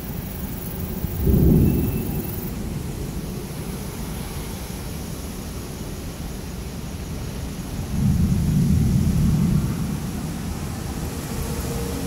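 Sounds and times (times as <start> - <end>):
low storm noise: 0.0 - 12.0
thunder rumble: 1.0 - 3.4, 7.7 - 12.0.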